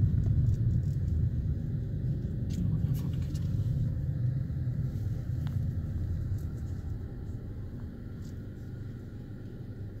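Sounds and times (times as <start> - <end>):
car road and engine noise: 0.0 - 10.0.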